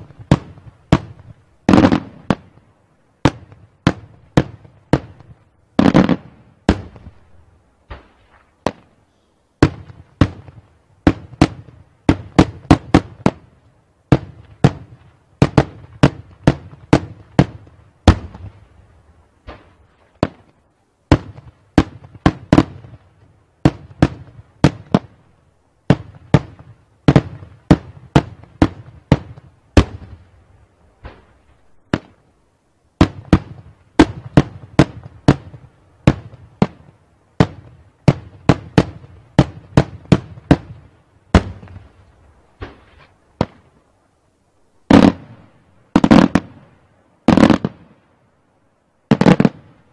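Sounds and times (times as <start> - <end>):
fireworks bangs with echo: 0.0 - 2.6, 3.2 - 7.3, 9.6 - 13.5, 14.1 - 18.6, 21.1 - 23.0, 23.6 - 25.2, 25.9 - 30.2, 31.0 - 32.2, 33.0 - 43.7, 44.9 - 46.7, 47.3 - 47.9, 49.1 - 49.8.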